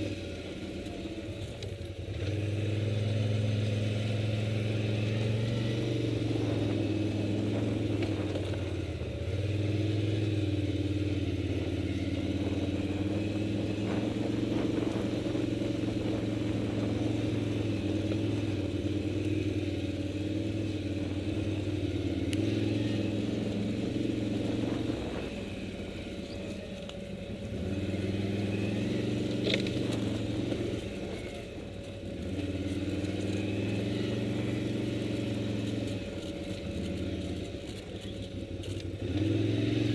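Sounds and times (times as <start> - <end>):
motorcycle engine running: 0.0 - 39.9
light clicks and rattles: 35.6 - 39.0.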